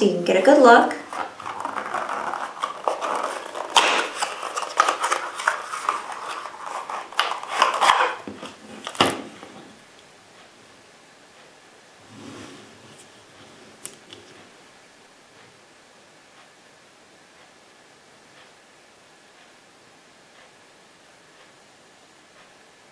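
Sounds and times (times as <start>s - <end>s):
cardboard flaps rustling: 1.0s - 9.8s.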